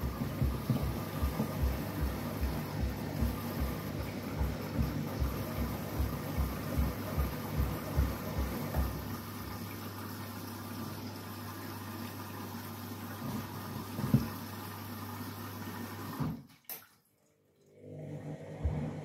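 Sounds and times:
water sloshing in drum: 0.0s - 12.1s, 12.8s - 14.5s
washing machine motor hum: 0.0s - 16.5s, 17.3s - 19.0s.

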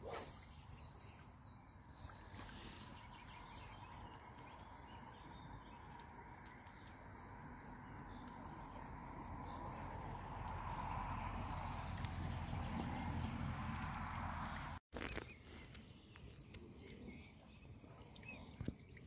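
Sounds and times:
faint splashing: 0.0s - 14.8s
steady outdoor hum: 0.0s - 14.8s
bills clicking in water: 2.2s - 10.7s, 11.8s - 14.8s.

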